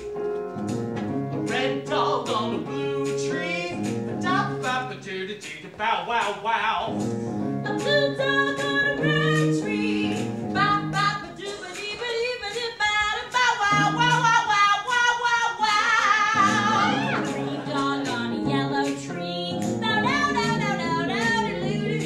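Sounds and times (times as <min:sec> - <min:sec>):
instrumental backing: 0:00.0 - 0:14.9, 0:16.3 - 0:22.0
woman singing show tune: 0:07.7 - 0:22.0.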